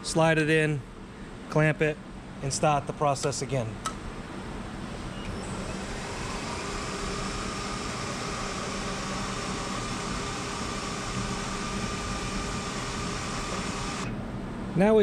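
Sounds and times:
steady machine whine: 4.0 - 14.6
milling machine cutting metal: 5.3 - 14.1.

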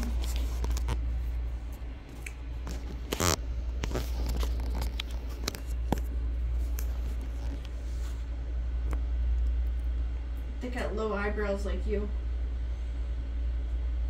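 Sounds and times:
rustling and scraping: 0.0 - 1.7, 2.6 - 8.4
steady low hum: 0.0 - 14.0.

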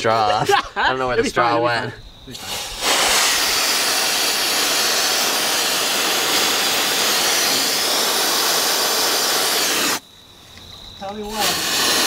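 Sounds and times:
compressed air can hissing: 2.3 - 10.0, 11.1 - 12.0.

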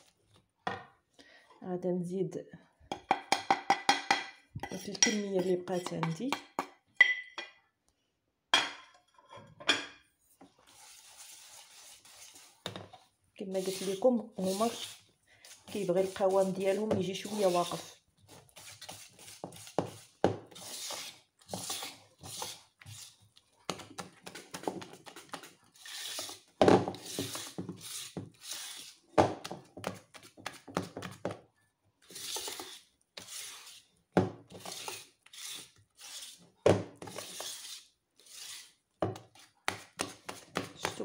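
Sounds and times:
whisk beating batter in bowl: 13.5 - 28.0.

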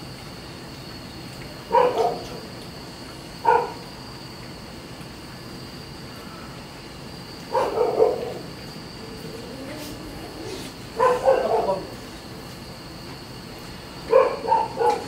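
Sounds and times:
dog barking: 1.7 - 2.4, 3.4 - 3.8, 7.5 - 8.5, 10.9 - 12.0, 14.1 - 15.0.

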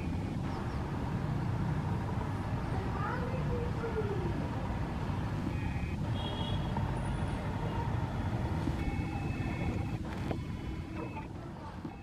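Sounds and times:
distant road traffic rumble: 0.0 - 12.0.

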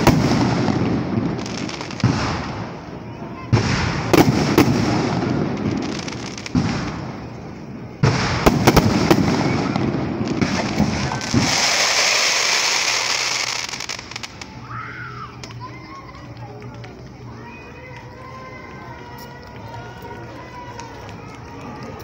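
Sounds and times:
firework shells booming: 0.0 - 14.6
sharp firework cracks: 0.0 - 14.7
fireworks crackling hiss: 0.0 - 22.0.

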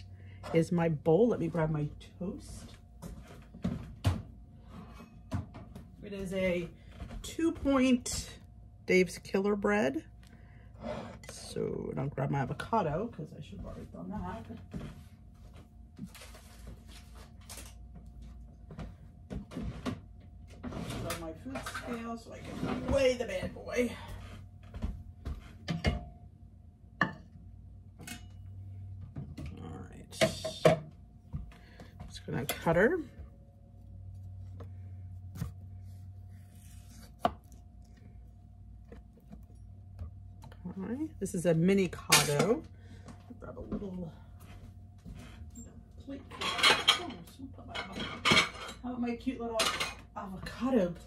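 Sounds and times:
faint steady hum: 0.0 - 51.0
kitchen knocks and clatters: 3.0 - 6.0, 24.7 - 26.2, 42.0 - 42.6, 46.2 - 48.8, 49.5 - 50.6
knife cutting avocado on board: 36.4 - 37.6.

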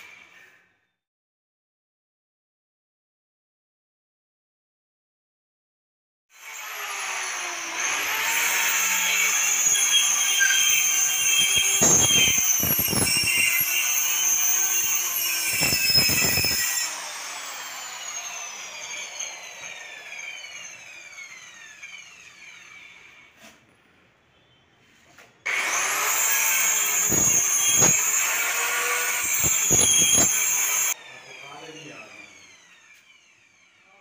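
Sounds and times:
power tool motor whining: 6.4 - 23.4, 25.5 - 33.8.

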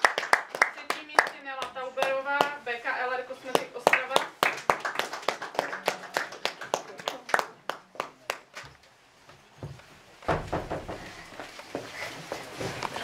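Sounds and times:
audience applause: 0.0 - 1.3, 3.8 - 8.5.

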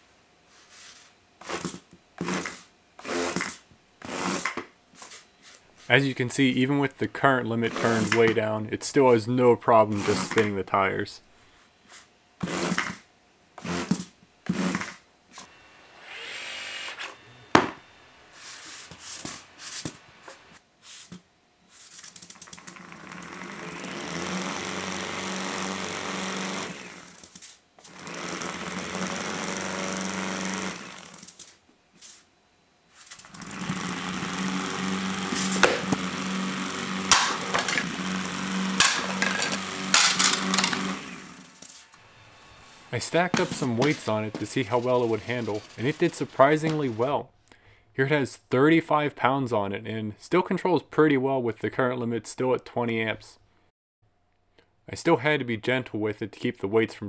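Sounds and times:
robot drive motors humming: 15.5 - 18.6, 22.3 - 31.6, 33.1 - 47.0
tire scrub on mats: 33.0 - 36.1.

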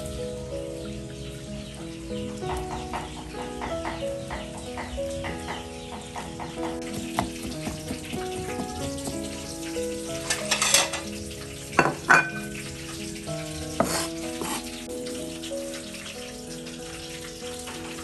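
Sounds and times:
soft instrumental music: 0.0 - 18.0
cleaver knocking on chopping board: 6.4 - 9.3, 13.8 - 14.6.

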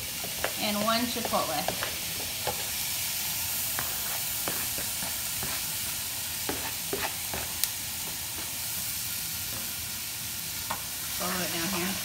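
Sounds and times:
vegetables sizzling in frying pan: 0.0 - 12.0
wooden spoon tapping and scraping: 0.2 - 2.7, 3.7 - 5.6, 6.5 - 8.5.

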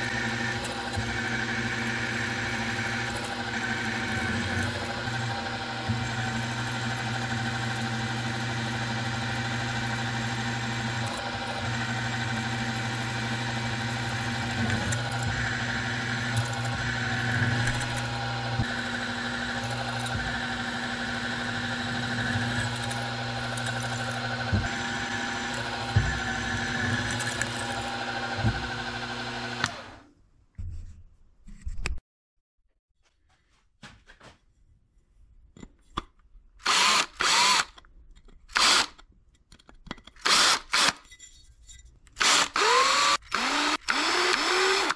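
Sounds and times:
milling machine drilling metal: 0.0 - 30.0, 36.6 - 37.7, 38.6 - 38.9, 40.2 - 41.0, 42.2 - 44.9.

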